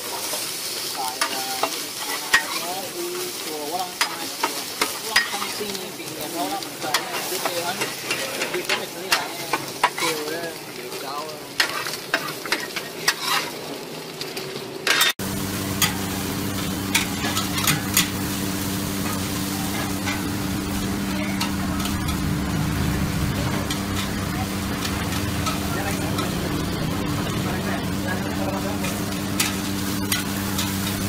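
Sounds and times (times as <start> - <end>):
food sizzling: 0.0 - 31.0
metal spatula scraping a griddle: 1.0 - 10.3, 11.6 - 13.7, 14.8 - 15.2, 16.9 - 18.3, 28.4 - 31.0
low mechanical hum: 15.2 - 31.0
utensil clinking in a wok: 28.8 - 31.0.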